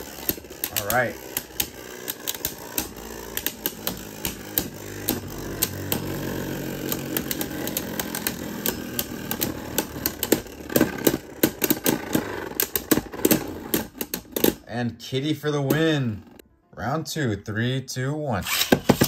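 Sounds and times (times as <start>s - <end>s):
spinning tops whirring: 0.0s - 14.7s
tops clacking together: 0.0s - 14.7s, 18.5s - 19.0s.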